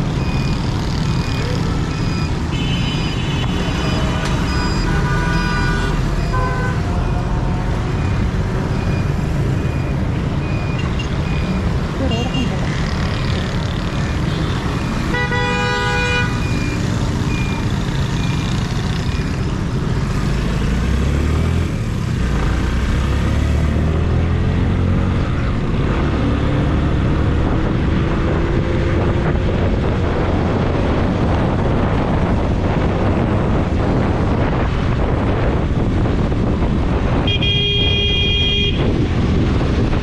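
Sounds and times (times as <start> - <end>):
road and wind noise: 0.0 - 40.0
vehicle horn: 2.5 - 6.8, 15.1 - 16.4, 37.2 - 38.9.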